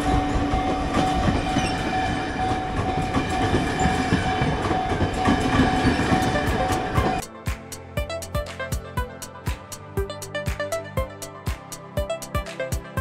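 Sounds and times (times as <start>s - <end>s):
steady ringing tone: 0.0s - 7.2s
train wheels clattering over rails: 0.0s - 7.2s.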